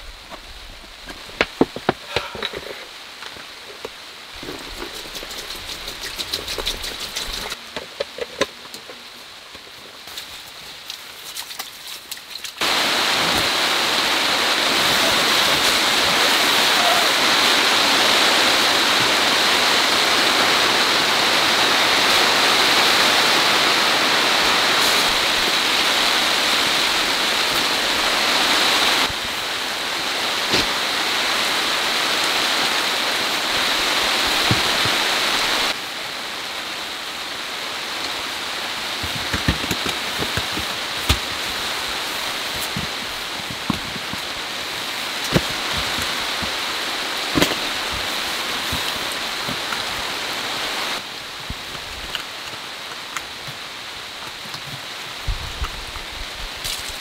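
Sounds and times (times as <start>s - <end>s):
heavy rain hissing: 12.6s - 57.0s.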